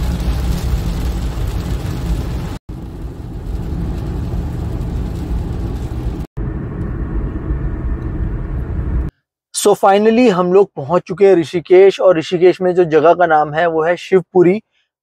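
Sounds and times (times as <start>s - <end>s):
heavy rain on car: 0.0s - 6.3s
low engine rumble: 0.0s - 9.1s
tyre and road noise: 0.0s - 9.1s.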